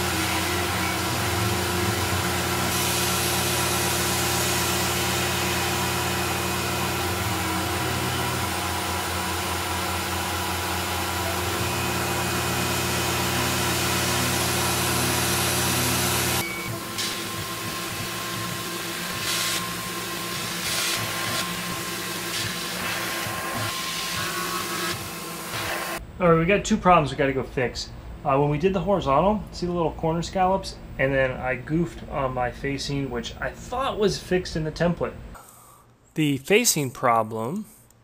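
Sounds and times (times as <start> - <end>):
end mill cutting metal hiss: 0.0 - 8.4
milling machine hum: 0.0 - 26.0.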